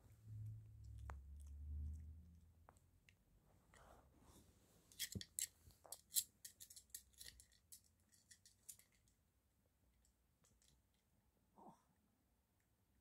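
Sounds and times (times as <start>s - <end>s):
plastic toy clicking and rattling: 5.0s - 9.1s.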